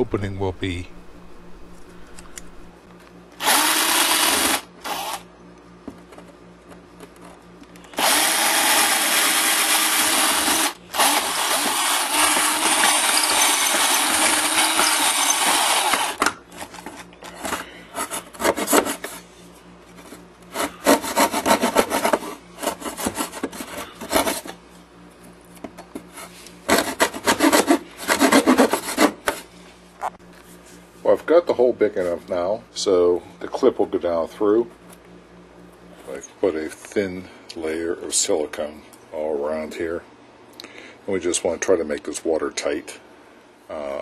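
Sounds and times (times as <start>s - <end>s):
electric drill boring: 3.4s - 5.2s, 8.0s - 16.2s
saw blade scraping: 20.5s - 24.6s, 26.1s - 29.4s.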